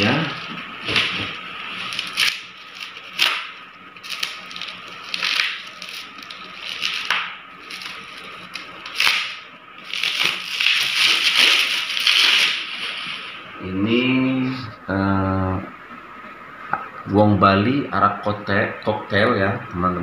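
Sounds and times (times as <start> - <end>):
plastic packing crinkling: 0.4 - 13.4
sharp plastic crackles: 0.8 - 13.1.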